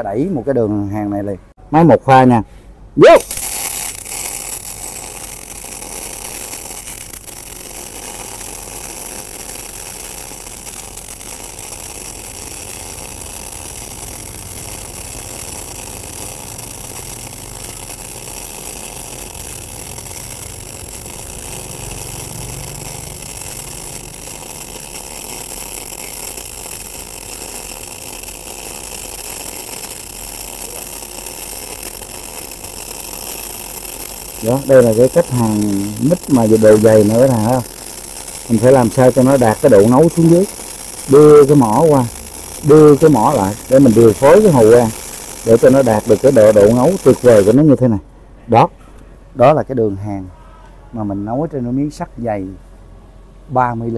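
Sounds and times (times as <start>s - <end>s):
welding arc burning: 3.0s - 48.0s.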